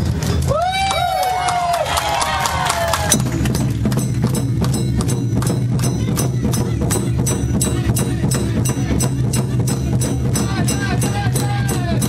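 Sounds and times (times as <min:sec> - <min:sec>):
taiko drums: 0:02.9 - 0:12.0
sharp clicking beat: 0:03.1 - 0:12.0.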